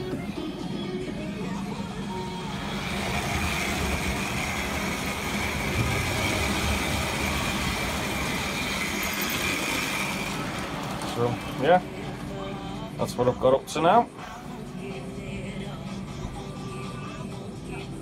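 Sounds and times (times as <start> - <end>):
electric motor whine: 2.3 - 12.5
wheels rumbling on rails: 2.4 - 13.3.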